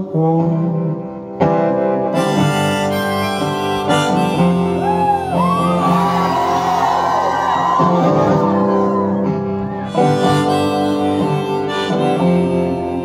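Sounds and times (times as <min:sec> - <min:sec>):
harmonica: 0:02.0 - 0:06.8, 0:08.0 - 0:13.0.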